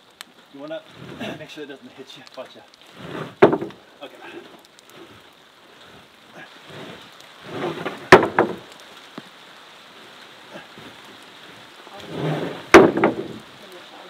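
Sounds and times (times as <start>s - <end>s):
wooden board scraping on logs: 0.7s - 1.6s, 2.3s - 8.8s, 10.6s - 13.6s
sharp wooden clack: 3.0s - 3.8s, 7.5s - 8.7s, 12.1s - 13.4s
wood knocking on wood: 3.0s - 3.8s, 7.5s - 8.7s, 12.1s - 13.4s.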